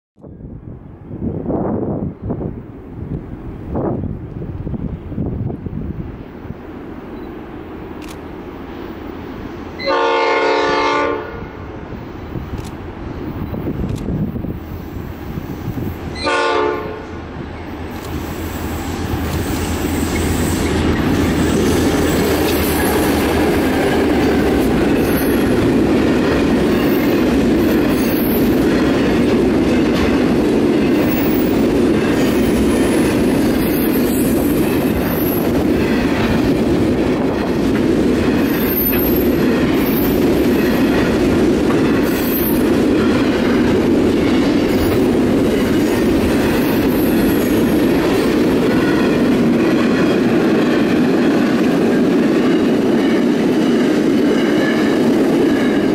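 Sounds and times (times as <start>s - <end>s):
train wheels rumbling on rail: 0.2s - 55.9s
train horn blast: 9.8s - 11.7s, 16.2s - 17.2s.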